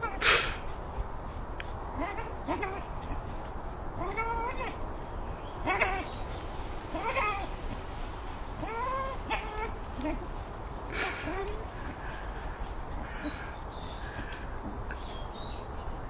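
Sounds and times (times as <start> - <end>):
animal crying out: 0.0 - 0.8, 1.9 - 3.3, 3.9 - 5.0, 5.6 - 7.6, 8.6 - 12.2.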